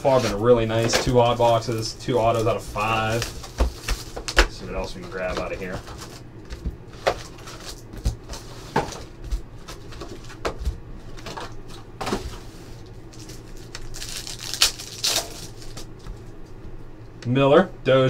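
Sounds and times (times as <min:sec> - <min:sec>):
crinkly wrapper rustling: 0:00.1 - 0:06.2, 0:07.0 - 0:10.4, 0:12.8 - 0:16.1.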